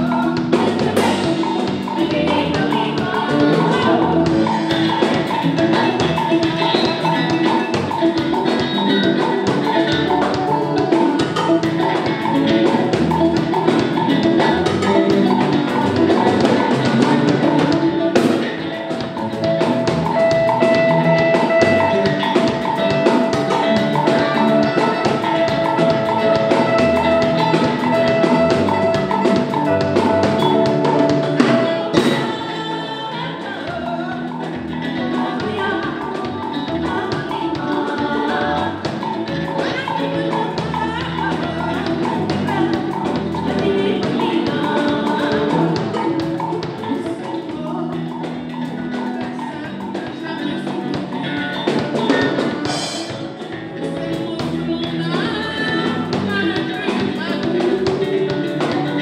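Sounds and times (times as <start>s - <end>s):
bass guitar: 0.0s - 59.0s
drum kit: 0.0s - 59.0s
electric guitar: 0.0s - 59.0s.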